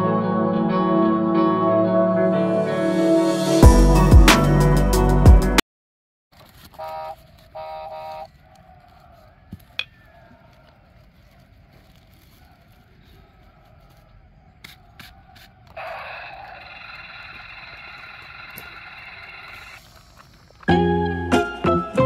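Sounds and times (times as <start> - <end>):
background music: 0.0 - 5.6, 20.7 - 22.0
light clicks and scrapes: 6.4 - 15.8.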